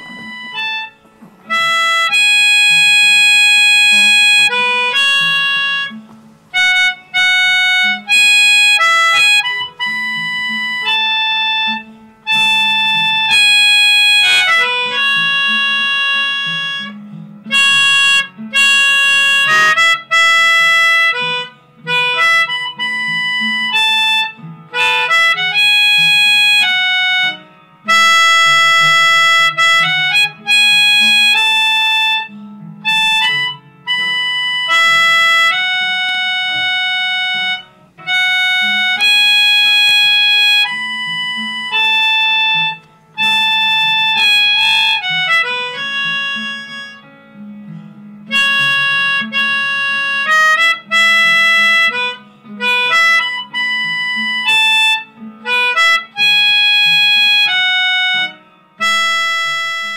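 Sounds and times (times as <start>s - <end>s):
background music with held notes: 0.0s - 59.9s.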